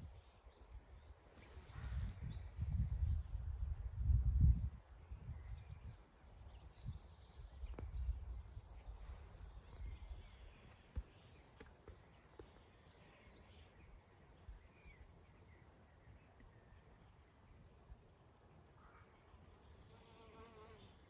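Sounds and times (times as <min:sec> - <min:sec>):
wind buffeting microphone: 0:01.7 - 0:06.0.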